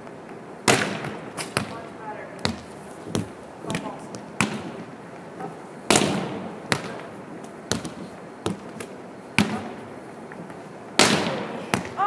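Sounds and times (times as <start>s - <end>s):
volleyball smacks on gym floor: 0.6s - 1.8s, 2.4s - 4.7s, 5.9s - 7.1s, 11.0s - 12.0s.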